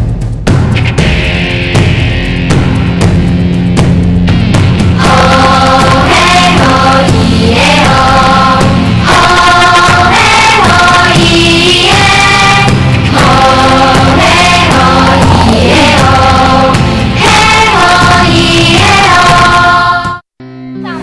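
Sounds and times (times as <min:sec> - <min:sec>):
choir singing: 0:05.0 - 0:20.2.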